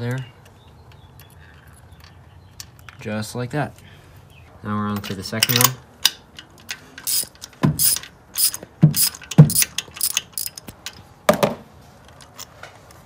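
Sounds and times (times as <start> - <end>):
hand ratchet clicking: 5.4 - 11.0.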